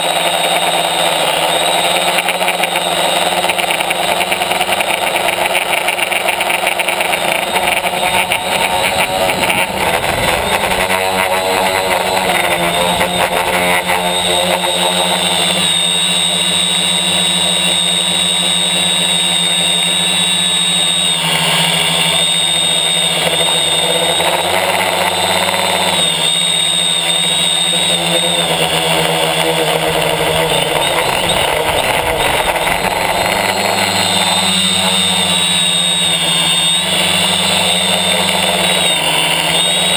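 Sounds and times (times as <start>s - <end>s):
drone propellers buzzing whine: 0.0s - 39.9s.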